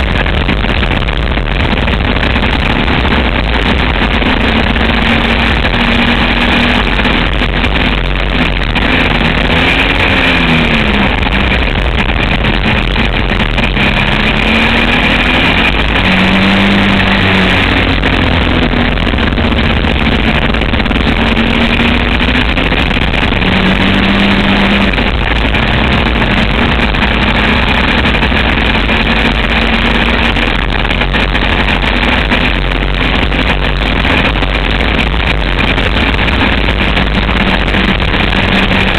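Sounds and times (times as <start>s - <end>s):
trike engine revving: 0.0s - 38.9s
wind noise on microphone: 0.0s - 38.9s.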